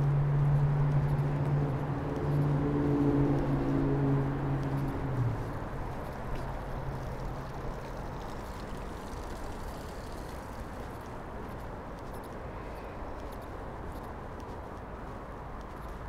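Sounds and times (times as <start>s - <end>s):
low engine hum: 0.0s - 11.9s
city traffic rumble: 0.0s - 16.0s.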